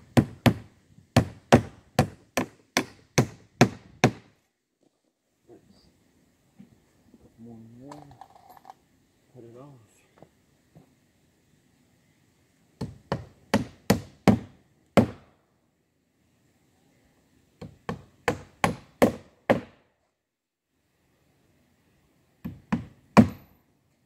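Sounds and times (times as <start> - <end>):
hammer driving nails into wood: 0.1 - 4.3, 12.8 - 15.2, 17.6 - 19.8, 22.4 - 23.5.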